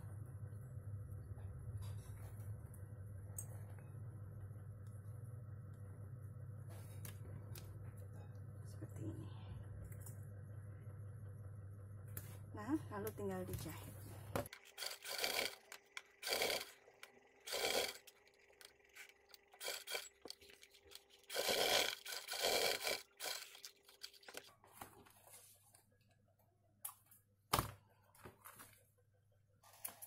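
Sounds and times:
faint motor hum: 0.0s - 30.0s
sewing machine stitching leather: 14.5s - 24.5s.

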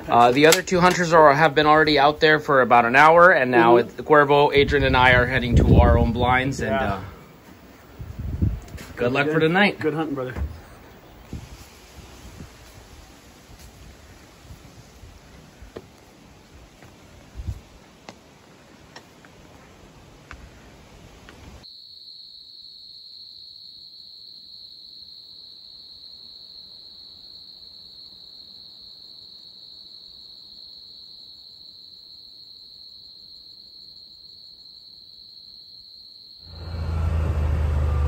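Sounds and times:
night insects droning: 0.0s - 37.9s
even hiss with light clicks: 21.2s - 21.6s.

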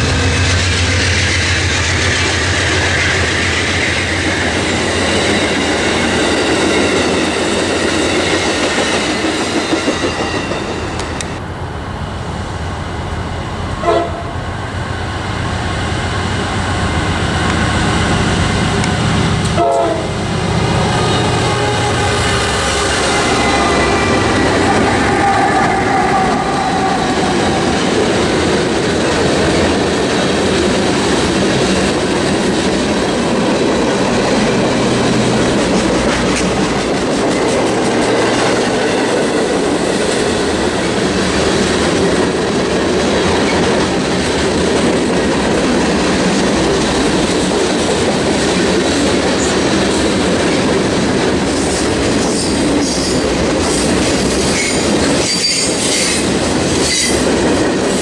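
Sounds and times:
freight cars rolling on rails: 0.0s - 11.4s, 15.5s - 58.0s
high-pitched wheel squeal: 54.5s - 56.2s.

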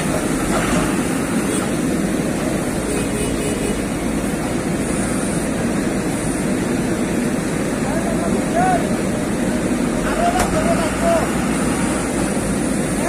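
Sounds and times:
heavy diesel engines droning: 0.0s - 13.0s.

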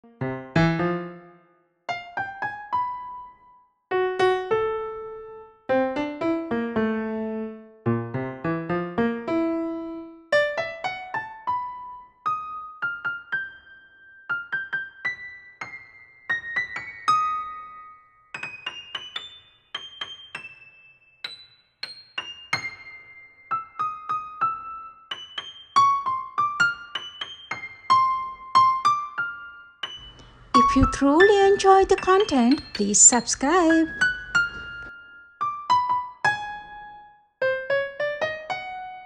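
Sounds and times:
slow piano melody: 0.0s - 39.0s.

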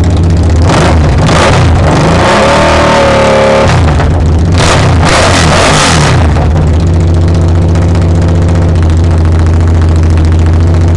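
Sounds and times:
motorcycle engine idling: 0.0s - 1.2s, 3.9s - 4.6s, 6.2s - 10.9s.

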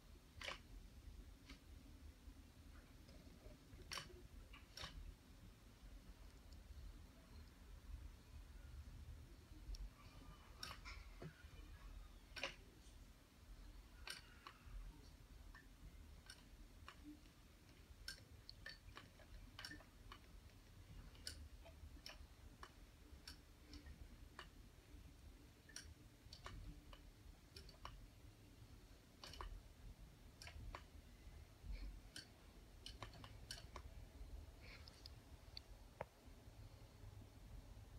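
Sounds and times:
sock machine clicking: 0.3s - 1.9s, 2.7s - 5.2s, 12.2s - 12.8s, 13.8s - 31.1s, 31.7s - 34.0s.

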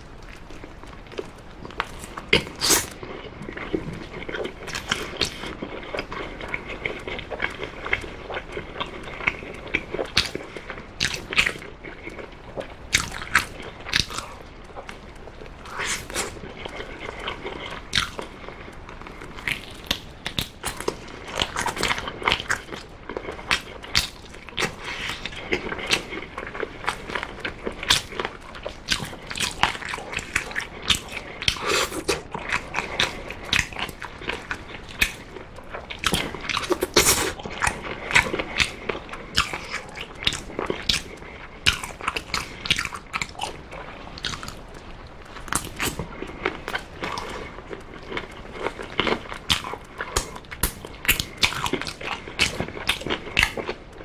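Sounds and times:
person chewing with mouth clicks: 0.0s - 54.0s.

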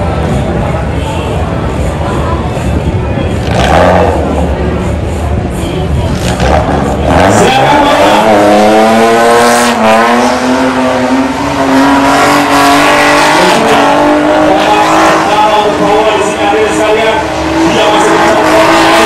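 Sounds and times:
car engine revving high: 3.3s - 4.8s, 6.0s - 19.0s.

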